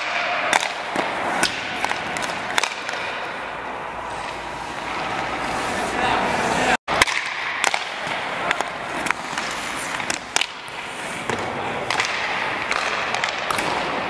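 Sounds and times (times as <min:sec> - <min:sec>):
hockey sticks and pucks clacking: 0:00.0 - 0:14.0
skate blades scraping ice: 0:00.0 - 0:14.0.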